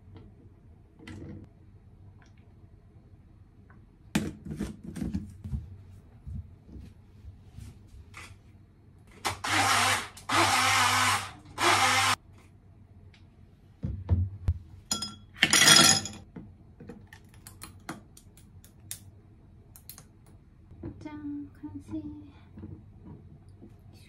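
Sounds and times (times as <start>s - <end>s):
bottle blender running: 9.3s - 12.2s.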